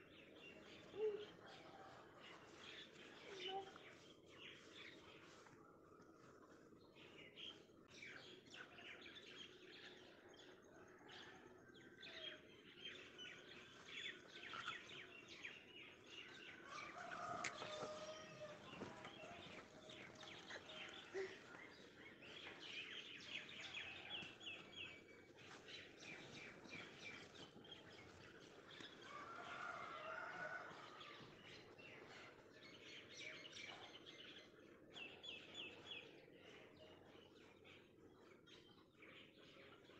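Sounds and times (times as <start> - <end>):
birds chirping: 14.0 - 30.7.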